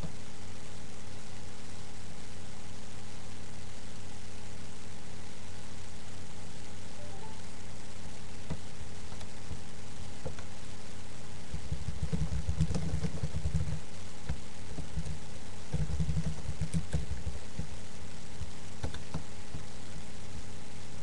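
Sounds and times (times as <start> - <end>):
electrical hum: 0.0 - 21.0
laptop keyboard typing: 11.5 - 17.8, 18.4 - 19.7.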